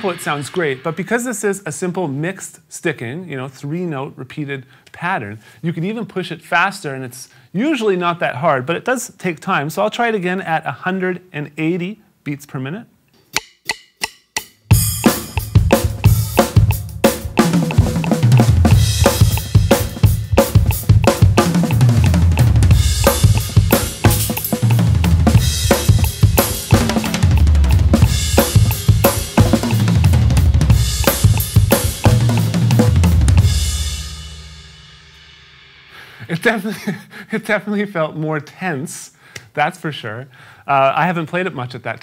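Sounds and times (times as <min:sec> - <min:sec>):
cymbals ringing: 0:00.0 - 0:01.2, 0:13.4 - 0:35.6
drum kit played fast: 0:00.0 - 0:01.9, 0:13.4 - 0:36.6.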